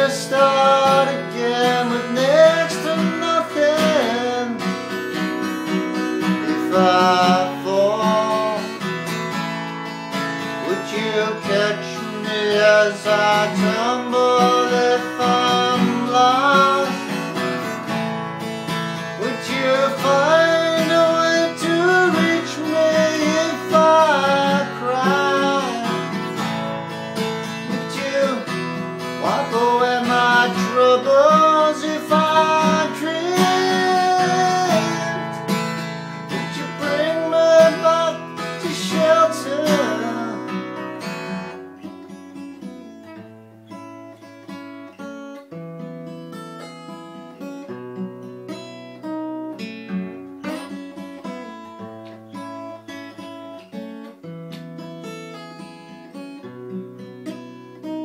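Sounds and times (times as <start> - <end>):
man singing: 0.0 - 9.3, 10.5 - 17.7, 19.0 - 41.5
strummed acoustic guitar: 0.0 - 58.0.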